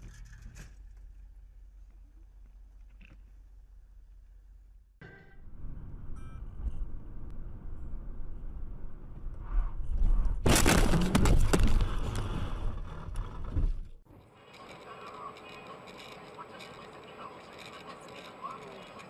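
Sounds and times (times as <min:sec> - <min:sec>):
car crash with crunching: 0:10.4 - 0:12.4.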